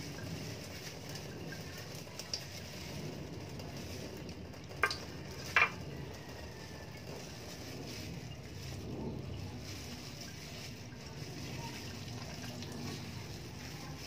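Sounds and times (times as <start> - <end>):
tap water running into sink: 0.0 - 7.3, 11.6 - 13.6
gloved hands rubbing and rinsing: 0.0 - 14.0
plastic part knocking sink: 4.8 - 5.8.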